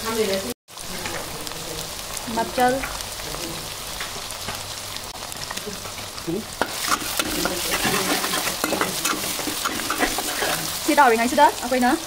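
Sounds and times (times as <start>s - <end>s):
food sizzling in hot oil: 0.0s - 12.0s
spatula scraping a metal pan: 6.6s - 11.0s.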